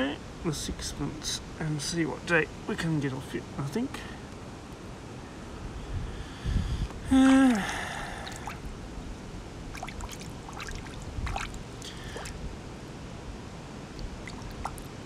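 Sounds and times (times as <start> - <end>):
water splashing and dripping: 8.2 - 8.7, 9.7 - 12.4, 13.9 - 15.0.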